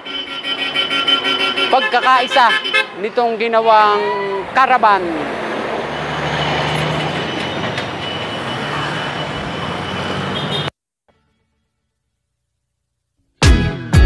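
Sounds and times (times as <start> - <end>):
truck passing: 0.0 - 10.7
vehicles passing: 0.0 - 10.7.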